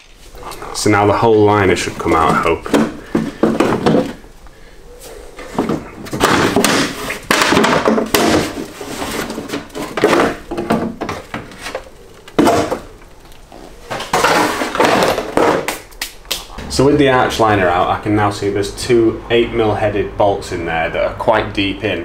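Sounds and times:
plastic liner scraping and rustling: 0.0s - 15.9s
knocks: 2.3s - 4.2s.

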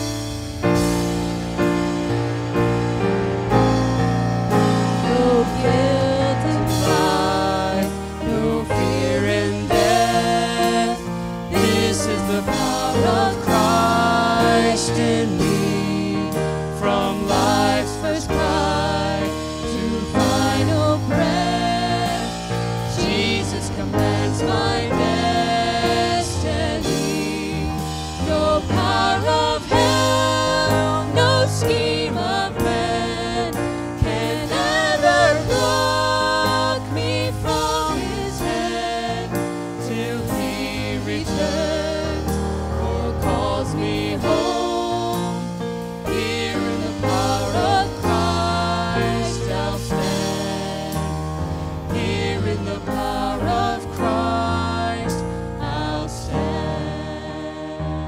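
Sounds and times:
instrumental accompaniment: 0.0s - 58.0s
woman and man singing: 5.1s - 27.8s.

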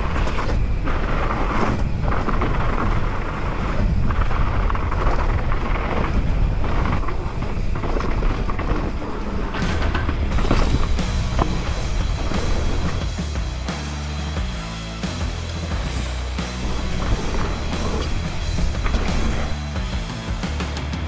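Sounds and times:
wind noise on microphone: 0.0s - 13.1s
bike tyre rumble and rattle: 0.0s - 21.0s.

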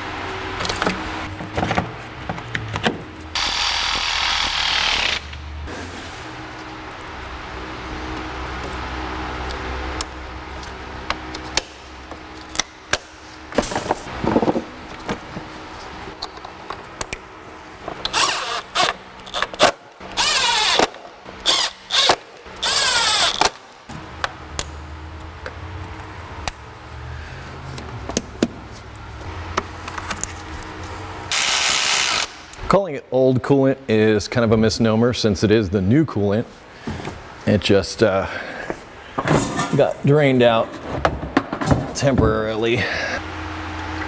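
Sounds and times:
power tool whirring in bursts: 3.4s - 5.3s, 20.1s - 23.5s, 31.3s - 32.4s.

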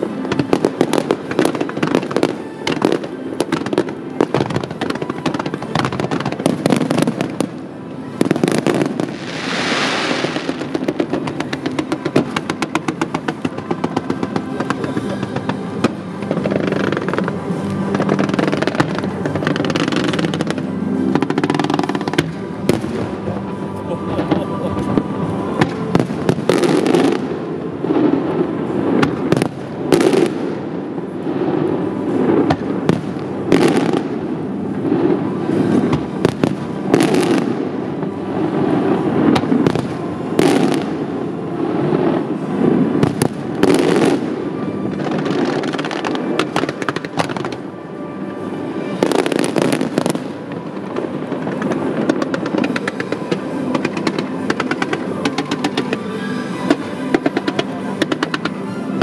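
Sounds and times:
fireworks bangs: 0.0s - 7.6s, 8.2s - 30.6s, 49.0s - 58.8s.

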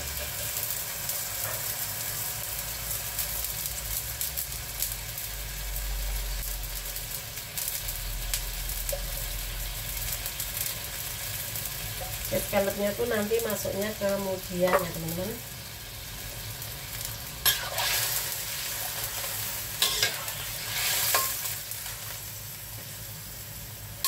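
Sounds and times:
broth sizzling in a wok: 0.0s - 24.0s.

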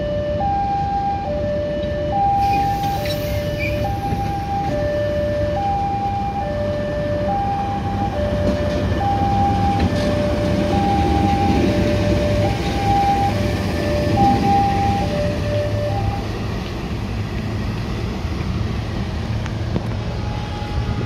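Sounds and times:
level crossing alarm two-tone: 0.0s - 16.3s
train rumbling past: 2.2s - 21.0s.

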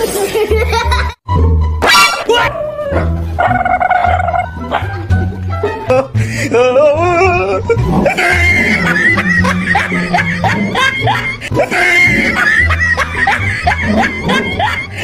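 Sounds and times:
high squeaky voices laughing: 8.0s - 15.0s.

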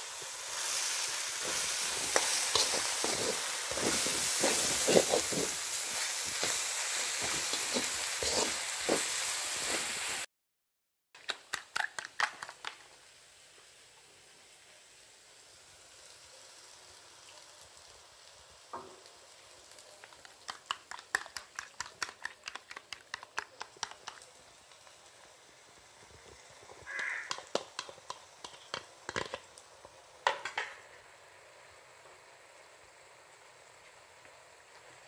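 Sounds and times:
egg sizzling in hot wok: 0.0s - 10.3s, 11.2s - 35.0s
spatula scraping and tapping wok: 0.2s - 10.1s, 20.1s - 24.2s, 26.7s - 29.5s.

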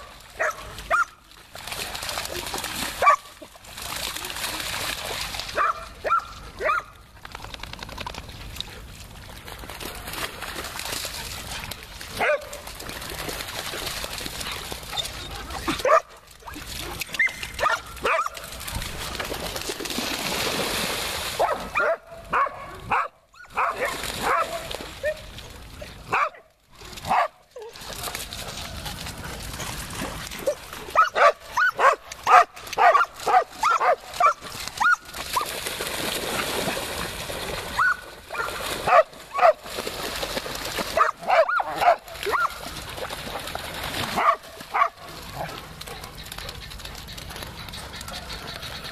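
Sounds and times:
dogs barking and yipping: 0.0s - 1.2s, 3.0s - 3.5s, 5.5s - 7.0s, 11.5s - 12.8s, 14.4s - 19.0s, 21.4s - 25.3s, 26.1s - 35.6s, 37.7s - 39.6s, 41.0s - 48.9s
dogs splashing through water: 0.0s - 48.9s.

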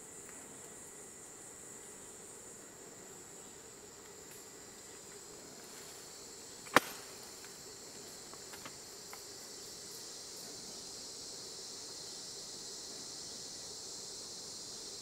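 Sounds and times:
forest insects droning: 0.0s - 15.0s
faint ticks: 0.2s - 0.8s
loud sharp click: 6.7s - 7.0s.

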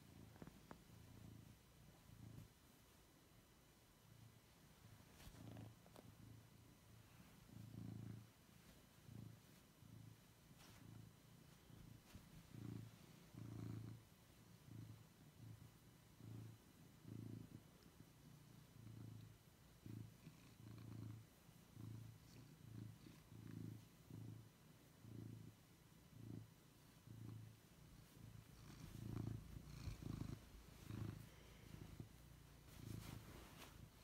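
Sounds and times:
cat purring: 0.0s - 34.0s
rustling: 4.5s - 14.1s, 26.7s - 34.0s.

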